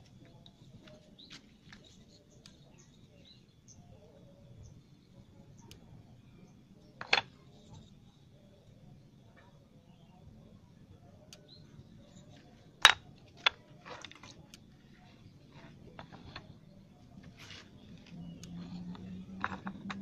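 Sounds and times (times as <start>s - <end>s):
low steady hum: 0.0s - 20.0s
clicks and scrapes on wooden plank: 12.8s - 14.6s, 15.5s - 16.6s, 17.2s - 20.0s.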